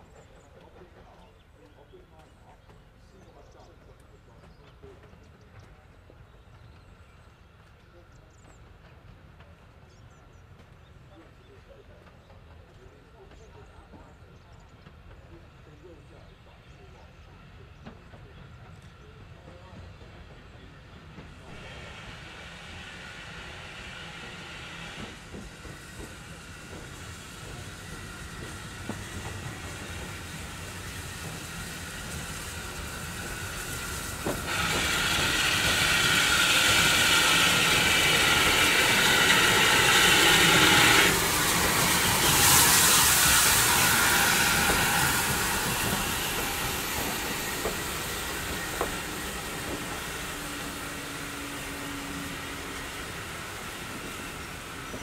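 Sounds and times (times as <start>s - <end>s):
train coaches rolling past: 0.0s - 55.0s
steam locomotive pulling away: 4.2s - 55.0s
train wheels clicking: 17.8s - 55.0s
loud steam hissing: 18.4s - 55.0s.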